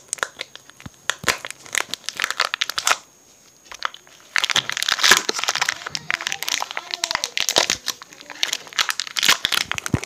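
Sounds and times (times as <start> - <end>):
packaging crinkling and tearing: 0.0 - 10.0.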